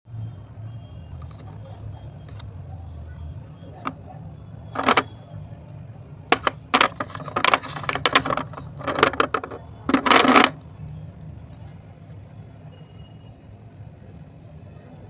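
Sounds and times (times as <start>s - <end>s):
dry clay crunching and crackling: 6.3s - 10.6s.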